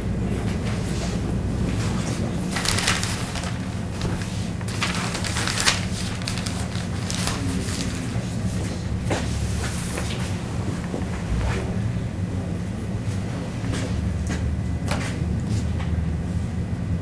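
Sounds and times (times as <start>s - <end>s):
low room hum: 0.0s - 17.0s
rustling: 2.5s - 8.0s.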